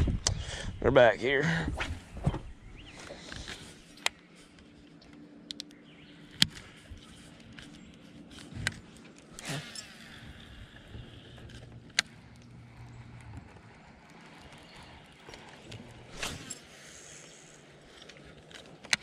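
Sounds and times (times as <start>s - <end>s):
faint low hum: 0.0s - 19.0s
clicks and knocks of gear: 3.2s - 16.7s, 17.8s - 19.0s.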